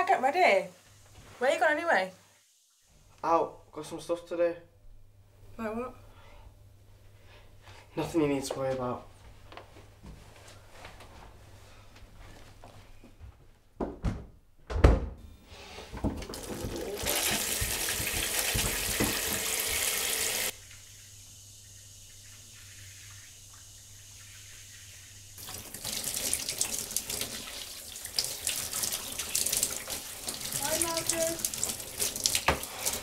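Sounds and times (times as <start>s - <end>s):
shower spraying water: 15.6s - 33.0s.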